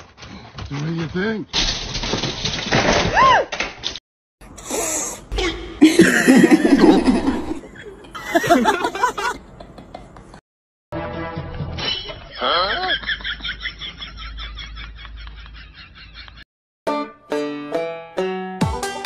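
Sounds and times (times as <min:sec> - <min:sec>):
people laughing: 0:05.8 - 0:10.2, 0:12.3 - 0:16.4.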